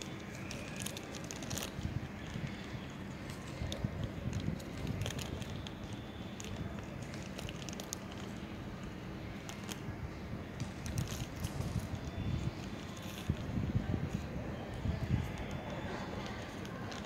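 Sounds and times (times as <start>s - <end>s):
foil bag crinkling: 0.0s - 8.5s, 9.4s - 9.8s, 10.7s - 13.5s, 15.1s - 17.0s
steady low rumble: 1.0s - 17.0s.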